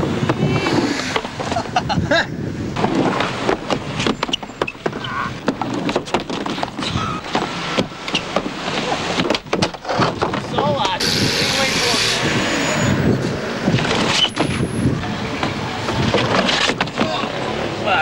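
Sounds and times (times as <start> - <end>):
skateboard rolling: 0.0 - 17.8
skateboard knocks and clacks: 2.7 - 11.0, 15.4 - 17.4.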